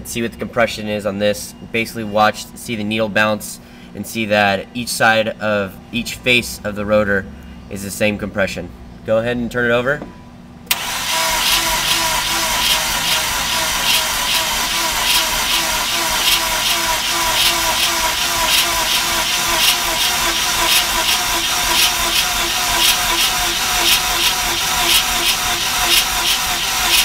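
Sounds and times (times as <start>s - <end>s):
starter motor cranking engine: 10.7s - 27.0s.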